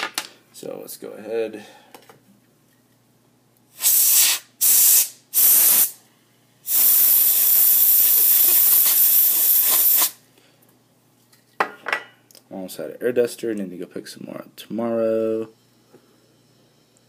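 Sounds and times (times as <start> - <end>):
canned air duster spraying: 3.8 - 6.0, 6.7 - 10.2.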